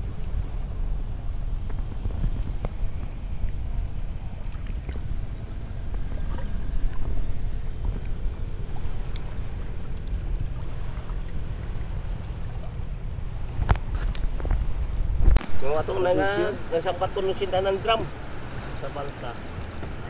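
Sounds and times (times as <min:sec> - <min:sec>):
water lapping against raft: 0:00.0 - 0:15.4
wind rumble on microphone: 0:00.0 - 0:20.0.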